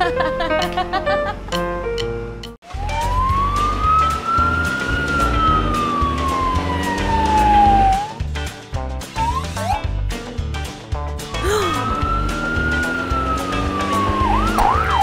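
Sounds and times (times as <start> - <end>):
ambulance siren wail: 2.7 - 8.2, 11.4 - 15.0
cartoon music: 2.7 - 8.2, 9.1 - 9.9, 11.4 - 15.0.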